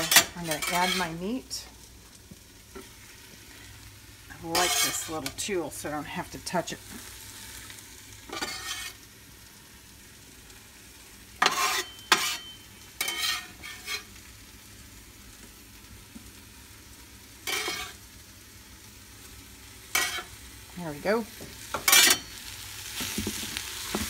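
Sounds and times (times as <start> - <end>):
meat sizzling: 0.0 - 24.0
metal scraper scraping and clinking: 4.6 - 5.0, 8.3 - 9.0, 11.4 - 14.0.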